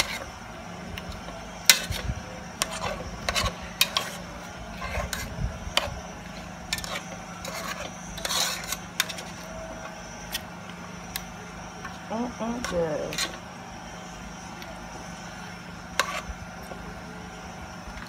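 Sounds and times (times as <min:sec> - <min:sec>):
meat in thick sauce stirred: 0:01.0 - 0:09.5
metal spoon scraping a pot: 0:02.6 - 0:09.5, 0:16.0 - 0:16.3.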